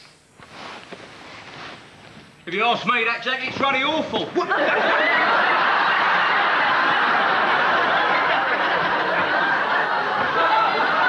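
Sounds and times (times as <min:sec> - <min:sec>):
audience laughing: 0:04.4 - 0:11.0.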